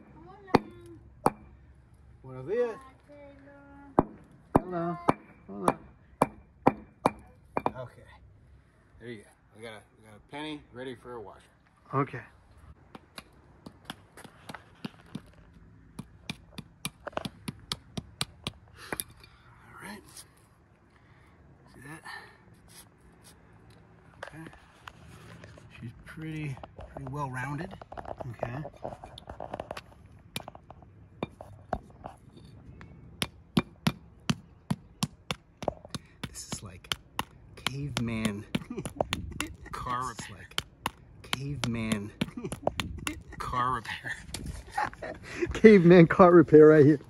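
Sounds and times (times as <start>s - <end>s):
rock tapping metal on concrete: 0.0s - 1.5s, 4.0s - 7.9s, 16.0s - 19.3s, 33.2s - 43.5s.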